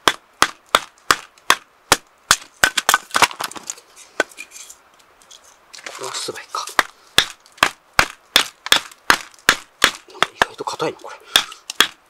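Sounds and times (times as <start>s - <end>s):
wood cracking: 2.3s - 3.8s.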